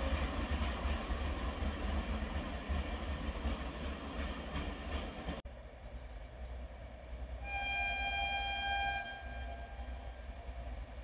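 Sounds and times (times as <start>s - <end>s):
train rumbling on track: 0.0s - 11.0s
locomotive air horn: 7.4s - 10.3s.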